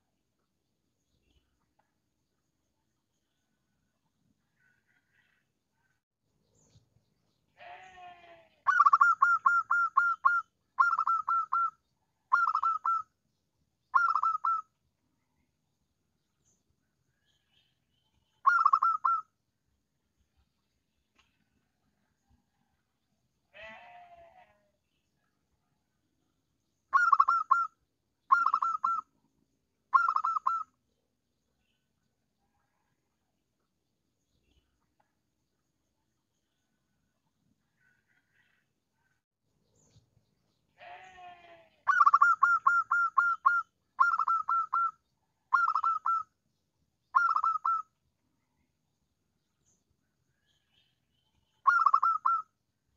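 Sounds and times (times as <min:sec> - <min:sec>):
dove cooing: 0:08.7 - 0:11.7, 0:12.3 - 0:13.0, 0:14.0 - 0:14.6, 0:18.5 - 0:19.2, 0:27.0 - 0:27.7, 0:30.0 - 0:30.6, 0:41.9 - 0:44.9, 0:45.5 - 0:46.2, 0:47.2 - 0:47.8, 0:51.7 - 0:52.4.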